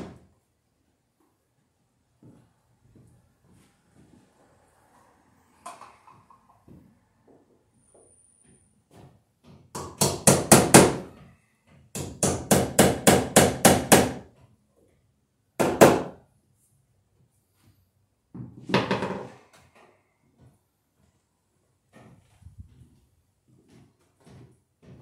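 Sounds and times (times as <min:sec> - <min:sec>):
hammer driving nails into wood: 0:09.7 - 0:11.2, 0:11.9 - 0:14.2, 0:15.6 - 0:16.2.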